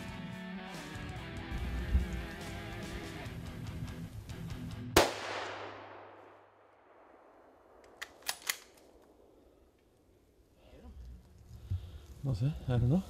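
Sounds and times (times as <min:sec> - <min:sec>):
rifle shot with echo: 0:05.0 - 0:09.4.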